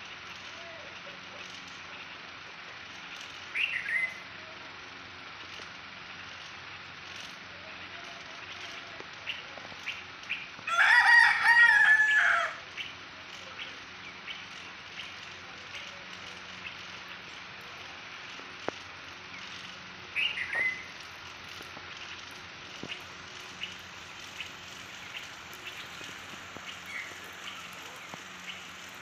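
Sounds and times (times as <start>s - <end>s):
bird chirps: 3.0s - 4.2s, 19.2s - 28.9s
rooster crowing: 10.6s - 12.7s.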